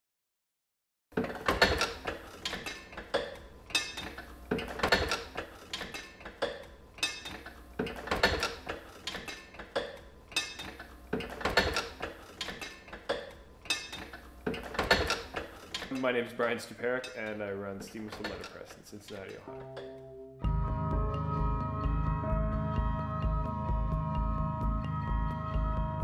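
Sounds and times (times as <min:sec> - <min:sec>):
printing press clanking: 0:01.2 - 0:20.0.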